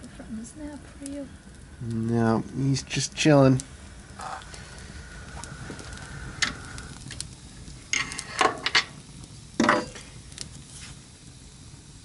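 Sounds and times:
sharp pops and snaps of fire: 0.0s - 12.0s
wood fire crackling: 0.0s - 12.0s.

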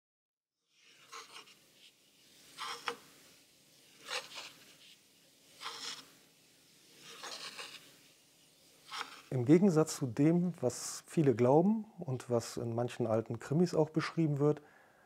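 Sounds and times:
razor blade scraping on whetstone: 0.8s - 1.6s, 2.6s - 3.0s, 3.9s - 4.6s, 5.6s - 6.1s, 7.0s - 7.9s, 8.8s - 9.3s.

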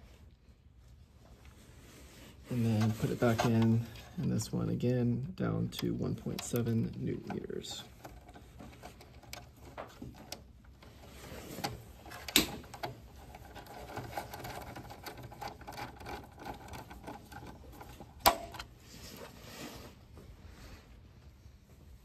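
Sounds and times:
light ticking and handling: 2.4s - 19.4s.

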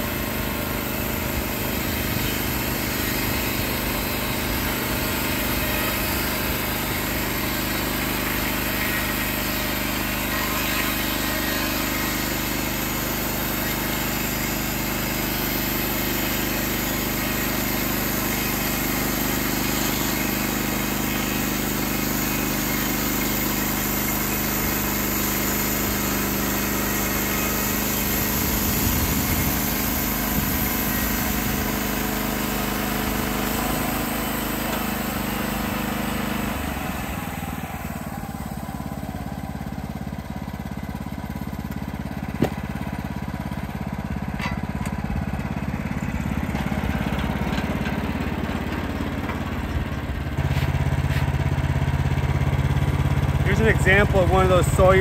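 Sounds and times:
band blade cutting log: 0.0s - 39.2s, 41.6s - 49.8s, 50.4s - 51.6s
sawmill engine running: 0.0s - 55.0s
sharp knock: 42.4s - 42.6s.

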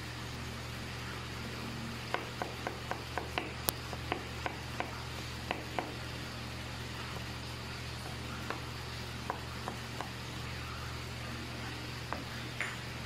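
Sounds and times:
steady low hum: 0.0s - 13.0s
knife chopping on cutting board: 2.1s - 6.0s.

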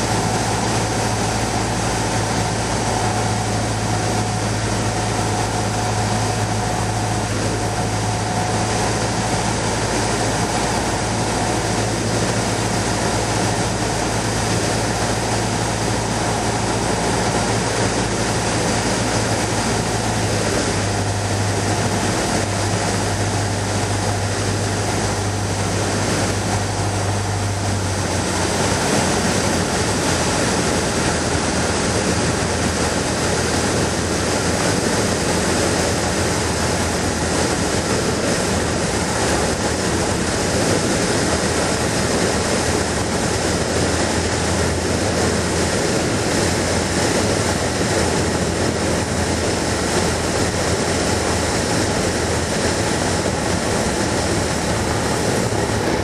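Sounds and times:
aircraft engine drone in cabin: 0.0s - 56.0s
airflow noise: 0.0s - 56.0s.

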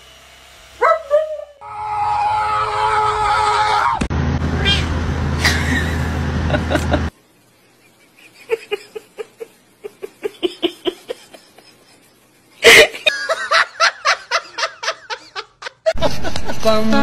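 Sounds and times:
person laughing hard: 5.4s - 7.1s, 8.0s - 16.7s.

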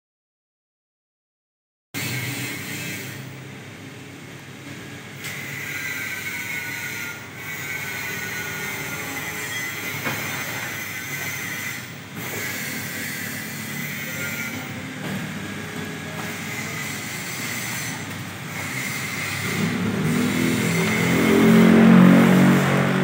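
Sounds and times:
steady background hum: 2.0s - 21.4s
printer motors whirring: 5.2s - 21.0s.

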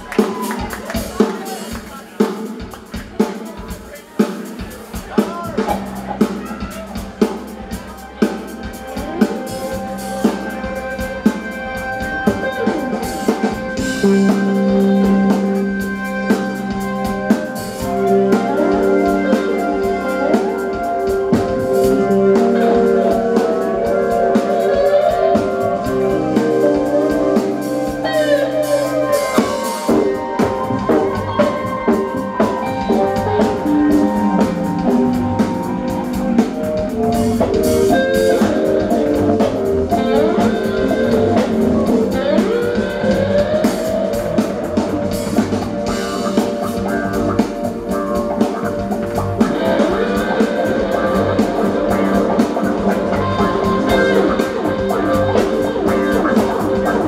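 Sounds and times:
drum kit beat: 0.0s - 57.0s
electric guitars: 0.0s - 57.0s
live rock band playing: 0.0s - 57.0s.

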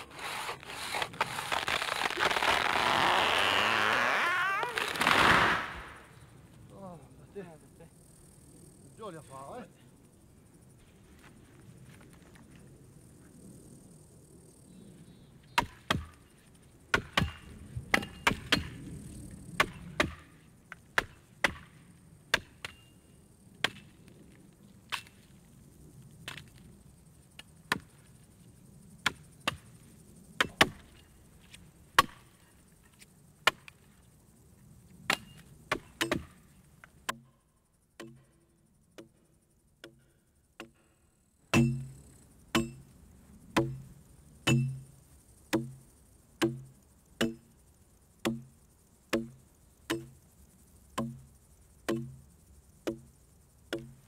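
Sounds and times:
axes chopping into wood: 15.6s - 16.1s, 16.9s - 18.7s, 19.6s - 20.2s, 30.4s - 30.8s, 35.1s - 36.3s, 41.6s - 41.9s, 43.6s - 43.8s, 44.5s - 44.8s, 46.4s - 47.4s, 48.2s - 48.5s, 49.1s - 50.1s, 51.0s - 51.2s, 51.9s - 52.2s
heavier deeper axe blows: 41.6s - 42.0s.

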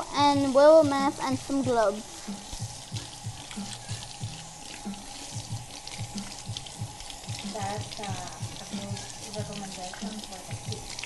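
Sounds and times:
faucet running into metal sink: 0.0s - 11.0s
hands washing under water: 0.0s - 11.0s.

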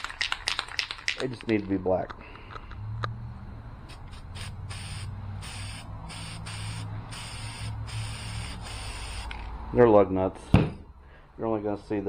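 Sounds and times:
spray paint can hissing: 3.9s - 9.5s.

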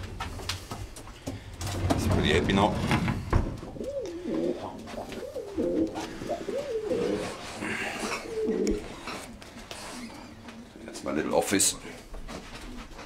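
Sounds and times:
pigeon cooing: 3.5s - 11.0s.

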